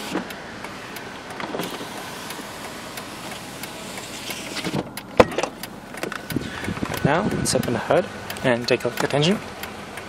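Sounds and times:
power window motor whirr: 0:00.0 - 0:07.4.

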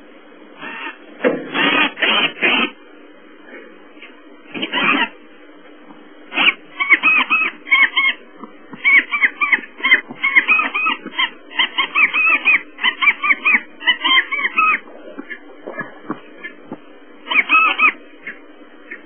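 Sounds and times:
wild dogs chirping: 0:04.6 - 0:05.2, 0:06.3 - 0:19.0.

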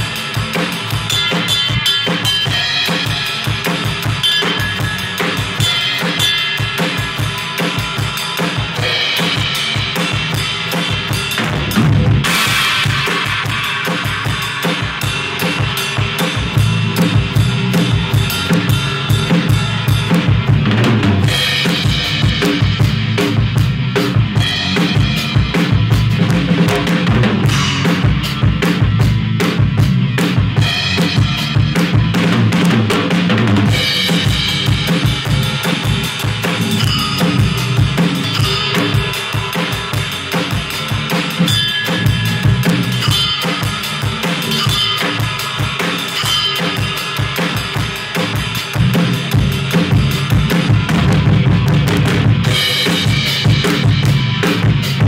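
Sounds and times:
cymbal washes: 0:00.0 - 0:20.5, 0:33.7 - 0:50.9
band playing rock: 0:00.0 - 0:55.0
drum kit rock groove: 0:00.0 - 0:55.0.

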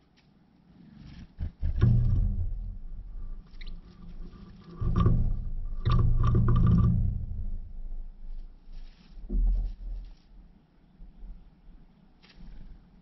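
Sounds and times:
scrabbling in dry grass: 0:08.3 - 0:10.4
bird wings fluttering: 0:12.2 - 0:12.9.

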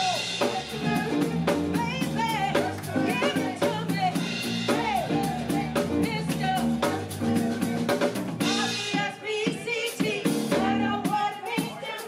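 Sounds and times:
electric bass: 0:00.0 - 0:08.8
keyboard: 0:00.0 - 0:09.1
drum kit: 0:00.0 - 0:12.0
woman singing: 0:00.0 - 0:12.0.

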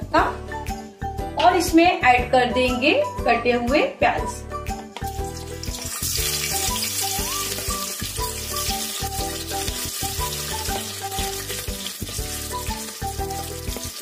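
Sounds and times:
background music: 0:00.0 - 0:14.0
onions sizzling in hot oil: 0:05.1 - 0:14.0.

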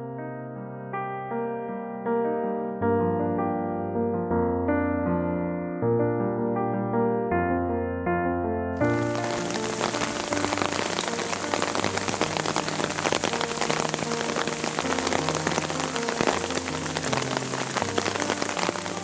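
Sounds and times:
rain falling on leaves: 0:08.8 - 0:19.0.

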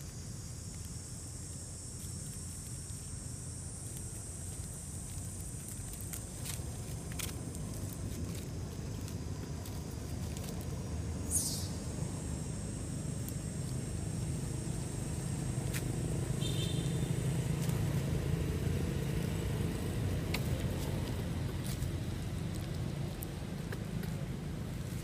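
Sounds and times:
vehicle engine rumbling: 0:00.0 - 0:25.0.

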